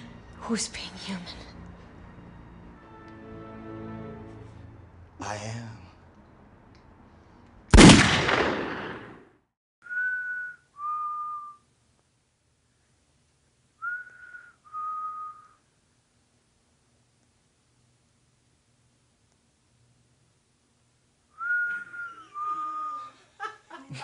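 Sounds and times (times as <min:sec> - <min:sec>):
pistol shot: 0:07.7 - 0:09.3
two-note whistle: 0:09.8 - 0:11.6, 0:21.4 - 0:22.9.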